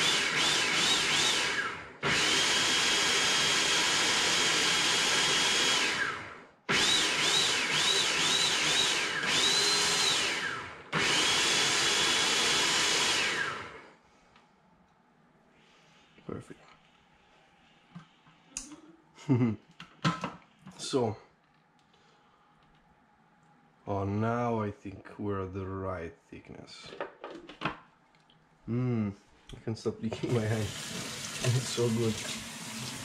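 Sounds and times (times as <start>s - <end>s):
food processor motor whining: 0.0s - 13.8s.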